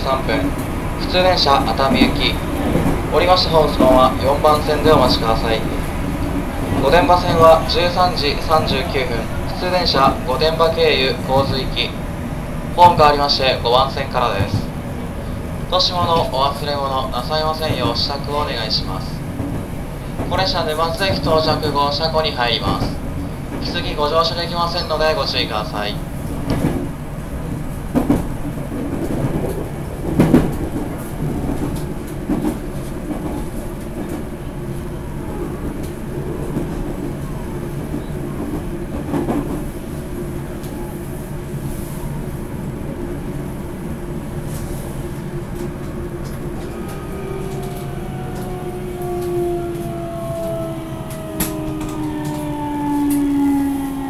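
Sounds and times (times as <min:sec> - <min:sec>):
train running rumble: 0:00.0 - 0:54.0.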